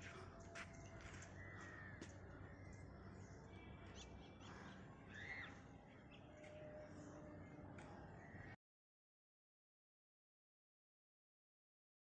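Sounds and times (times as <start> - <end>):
faint crow caws: 0.1 - 3.1, 4.4 - 5.6, 7.8 - 8.6.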